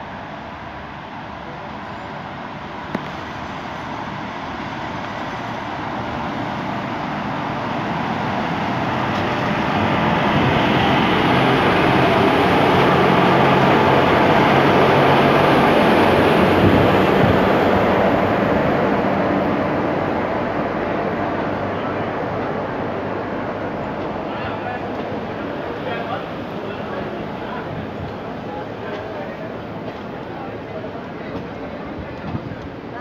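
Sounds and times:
train passing at speed: 0.0s - 33.0s.

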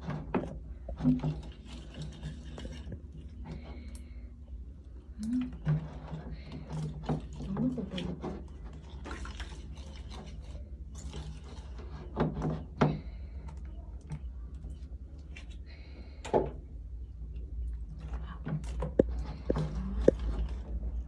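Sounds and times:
water pouring into bowl: 1.2s - 3.3s, 6.7s - 12.0s
whisk scraping ceramic bowl: 5.6s - 12.7s.

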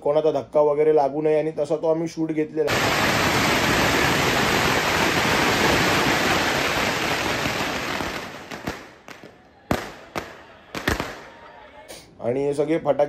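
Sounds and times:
firecrackers crackling and banging: 2.7s - 11.5s.

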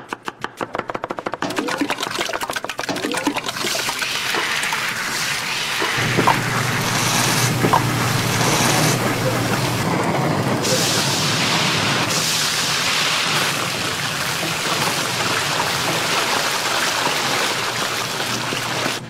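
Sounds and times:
knife chopping on a board: 0.0s - 1.5s
food sizzling and frying: 3.8s - 9.9s, 10.6s - 19.0s
low hum: 6.0s - 9.9s.

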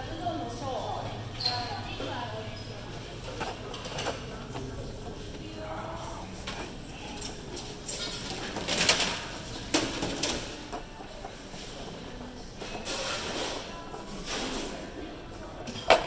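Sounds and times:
faint background voices: 0.0s - 16.0s.

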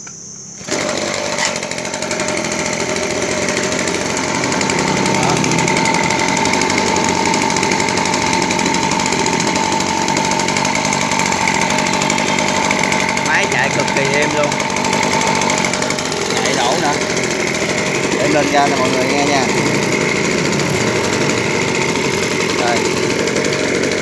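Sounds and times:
brush cutter engine running: 0.6s - 24.0s.

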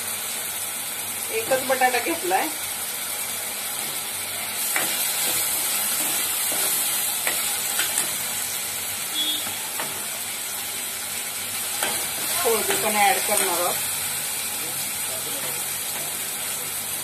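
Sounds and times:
food sizzling in oil: 0.0s - 17.0s
spatula scraping pan: 3.8s - 8.3s.

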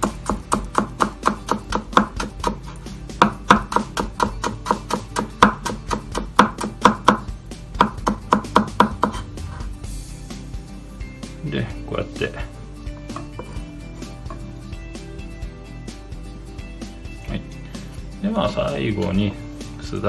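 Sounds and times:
knife slicing on wooden board: 8.8s - 9.7s.

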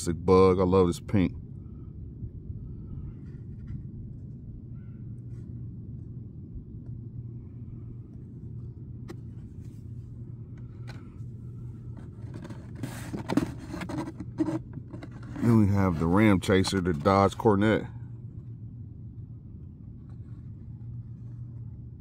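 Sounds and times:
steady low hum: 0.0s - 22.0s
cardboard rustling and scraping: 8.6s - 17.4s, 20.0s - 22.0s.

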